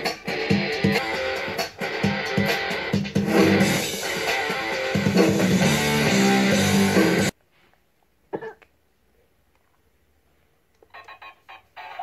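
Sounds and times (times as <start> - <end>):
guitar music: 0.0 - 7.3
short cough: 8.3 - 8.7.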